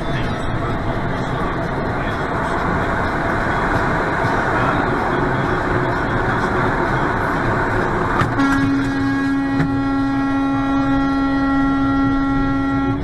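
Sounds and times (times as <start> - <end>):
road and engine rumble: 0.0 - 13.0
vehicle horn: 8.2 - 13.0.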